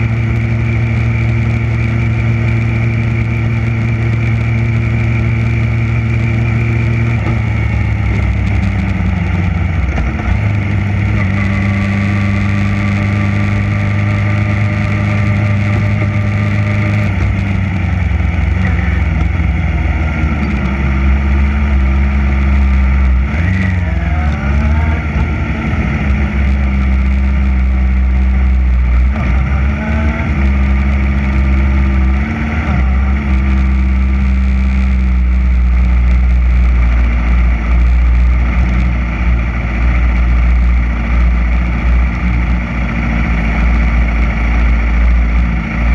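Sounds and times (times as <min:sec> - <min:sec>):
motorcycle engine idling: 0:00.0 - 0:23.3
motorcycle throttle blips: 0:00.0 - 0:29.6.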